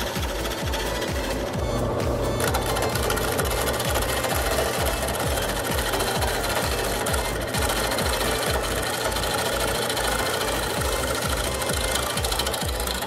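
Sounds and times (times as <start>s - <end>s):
wood lathe cutting: 0.0s - 13.0s.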